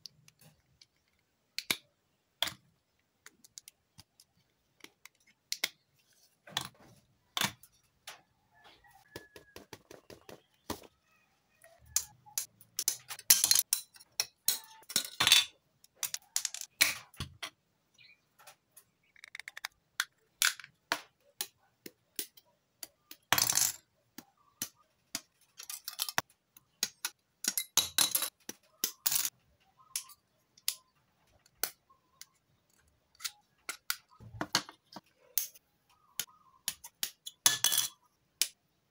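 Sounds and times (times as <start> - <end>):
plastic parts clicking together: 0.0 - 5.8, 18.4 - 23.3.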